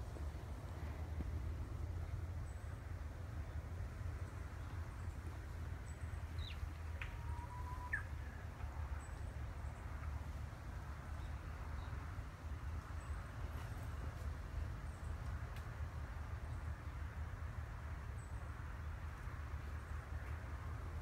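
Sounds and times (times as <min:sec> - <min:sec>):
low outdoor rumble: 0:00.0 - 0:21.0
bird calls: 0:06.4 - 0:08.2.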